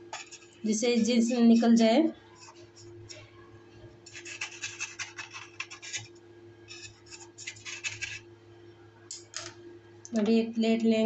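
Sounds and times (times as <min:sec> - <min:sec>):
knife scraping metal cake tin: 0:00.0 - 0:03.2, 0:04.0 - 0:06.1, 0:06.7 - 0:08.2.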